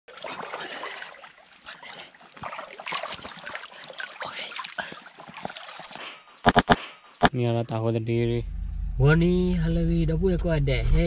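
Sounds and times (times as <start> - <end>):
creek water splashing: 0.1 - 7.2.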